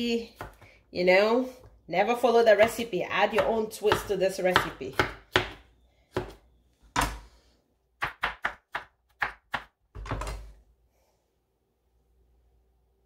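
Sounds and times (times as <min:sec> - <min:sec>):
knife chopping on plastic board: 0:00.2 - 0:00.7, 0:02.6 - 0:07.3, 0:08.0 - 0:10.5.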